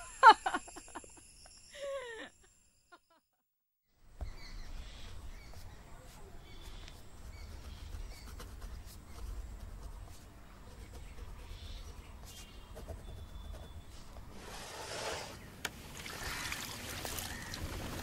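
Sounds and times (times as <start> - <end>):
faint bird chirps: 4.2 - 9.4, 10.8 - 14.2.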